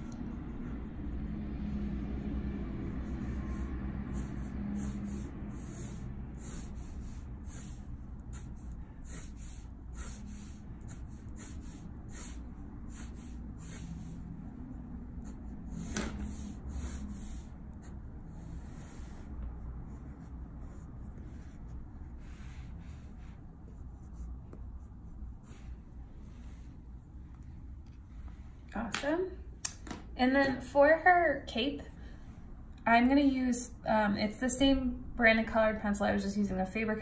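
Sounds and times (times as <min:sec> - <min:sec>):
pencil scratching on paper: 0:00.0 - 0:26.8
low hum: 0:00.0 - 0:28.8.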